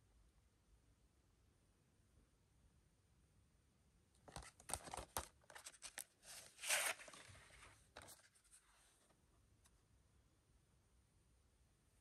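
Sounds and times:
plastic case clicks and rubs: 0:04.3 - 0:06.0
case scraping out of sleeve: 0:06.6 - 0:07.2.

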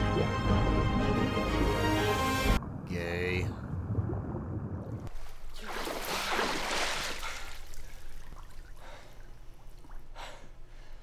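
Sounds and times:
water rushing and sloshing: 0:01.5 - 0:10.1.

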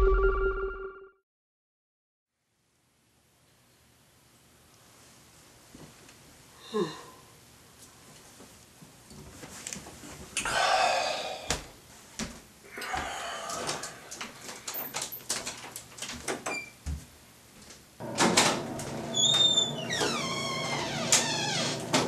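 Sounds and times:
man yawning: 0:06.6 - 0:07.2, 0:10.4 - 0:11.5
breathy sound: 0:06.6 - 0:07.3, 0:10.4 - 0:11.6, 0:12.7 - 0:14.3.

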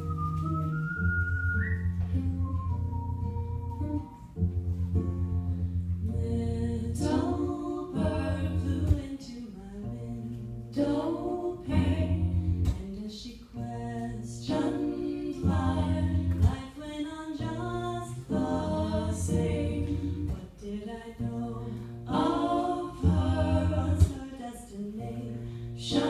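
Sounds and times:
acoustic guitar: 0:00.0 - 0:26.0
person singing: 0:06.0 - 0:26.0.

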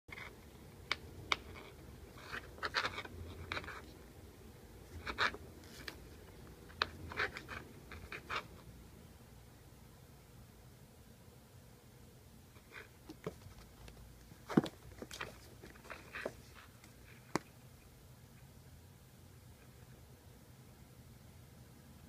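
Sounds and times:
kitten claws scratching wooden floor: 0:00.1 - 0:04.0, 0:04.9 - 0:08.7, 0:12.6 - 0:17.6.

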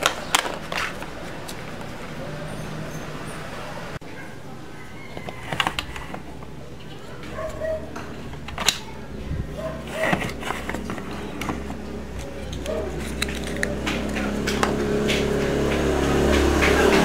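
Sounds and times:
plastic toy clicks and rattles: 0:09.9 - 0:15.2.

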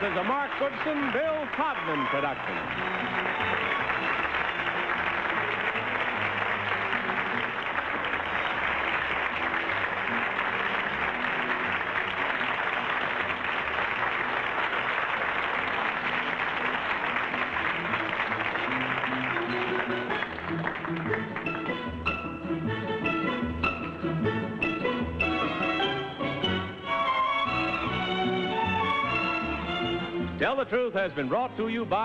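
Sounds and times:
audience applauding: 0:00.0 - 0:22.4
theme music: 0:00.0 - 0:32.0.

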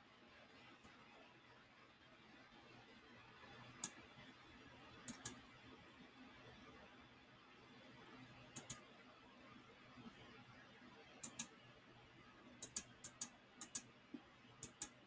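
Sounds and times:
faint room hiss: 0:00.0 - 0:15.0
computer mouse clicking: 0:03.7 - 0:04.0, 0:05.0 - 0:05.4, 0:08.5 - 0:08.9, 0:11.2 - 0:11.6, 0:12.6 - 0:15.0.

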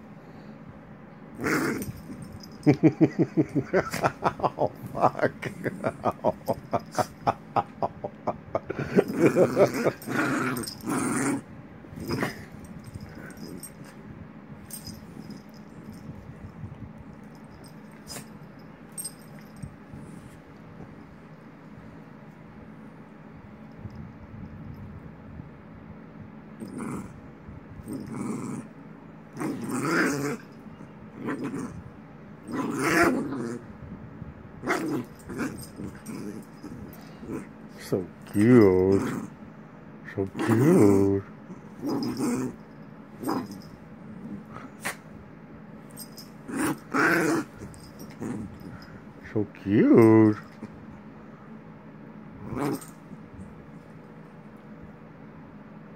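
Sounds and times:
puppy growling: 0:01.4 - 0:07.8, 0:08.7 - 0:14.0, 0:26.6 - 0:27.2, 0:27.8 - 0:33.8, 0:34.6 - 0:39.4, 0:40.2 - 0:45.1, 0:46.0 - 0:49.0, 0:52.4 - 0:53.1.

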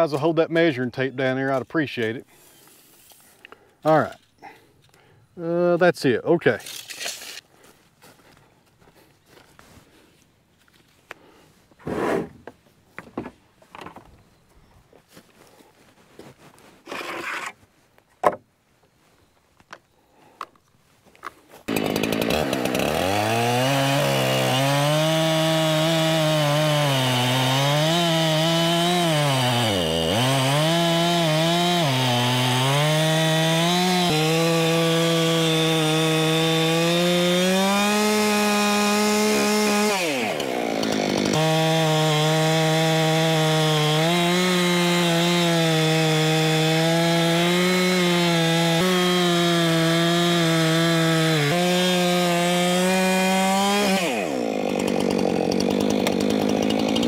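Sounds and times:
chainsaw cutting log: 0:11.8 - 0:12.6, 0:16.8 - 0:17.6, 0:21.6 - 0:57.0.

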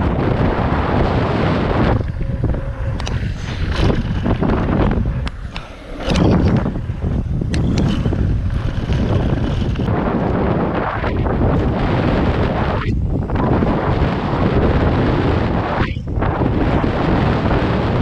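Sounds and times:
wind rushing over microphone: 0:00.0 - 0:18.0
bike clicks and rattles: 0:01.8 - 0:10.4.

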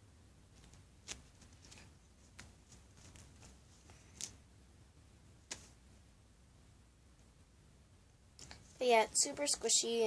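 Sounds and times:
faint handling clicks and rustles: 0:00.5 - 0:04.5.

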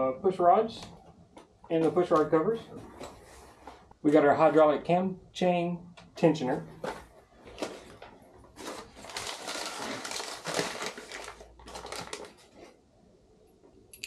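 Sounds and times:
packaging rustling and crinkling: 0:06.8 - 0:12.8.

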